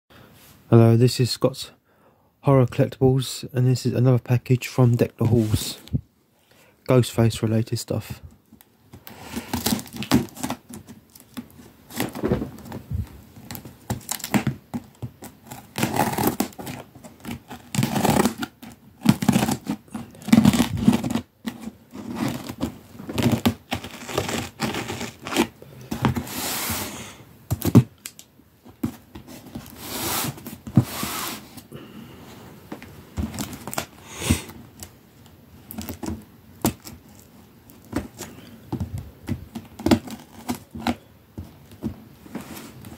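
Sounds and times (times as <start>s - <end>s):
cardboard scraping: 9.0s - 28.0s, 28.6s - 31.7s, 32.3s - 34.9s, 35.8s - 42.9s
tape tearing: 9.1s - 12.8s, 13.4s - 26.9s, 33.2s - 34.9s, 39.5s - 41.0s
scissors cutting packing tape: 15.4s - 21.6s.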